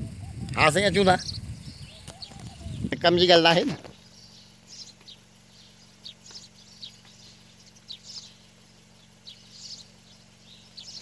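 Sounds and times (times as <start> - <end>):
steady low hum: 0.0 - 11.0
short high bird chirps: 3.9 - 11.0.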